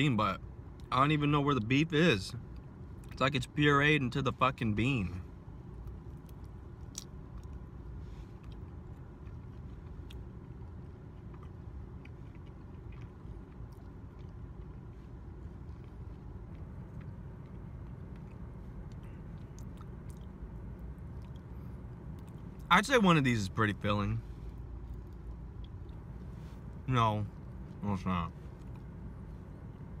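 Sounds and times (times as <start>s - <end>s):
low rumble inside a car: 0.0s - 30.0s
person chewing food: 5.8s - 22.7s.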